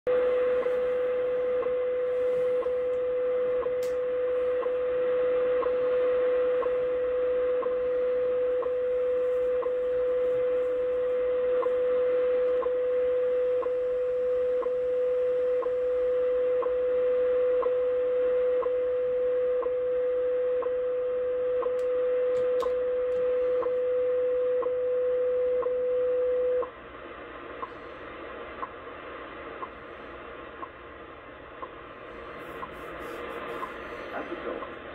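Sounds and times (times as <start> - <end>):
radio band hiss: 0.1 - 12.9, 26.6 - 34.9
steady radio tone: 0.1 - 34.9.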